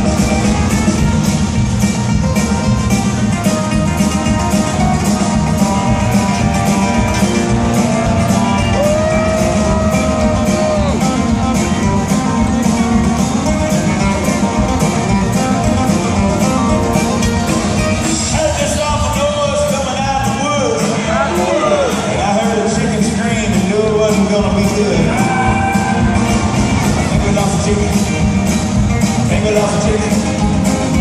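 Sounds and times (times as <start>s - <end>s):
amplified acoustic guitar: 0.0s - 31.0s
live band playing: 0.0s - 31.0s.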